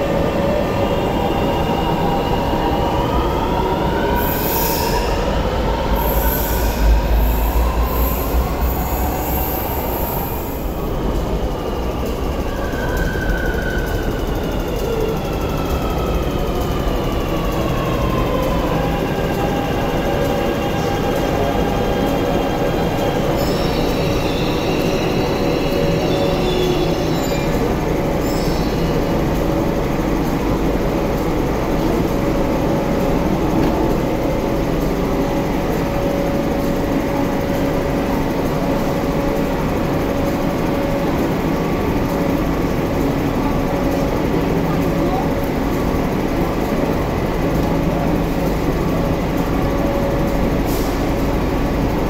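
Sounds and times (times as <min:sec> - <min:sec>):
standing train hum: 0:00.0 - 0:52.0
train inverter whine: 0:00.0 - 0:52.0
high brake squeal: 0:23.3 - 0:27.6, 0:28.2 - 0:29.1.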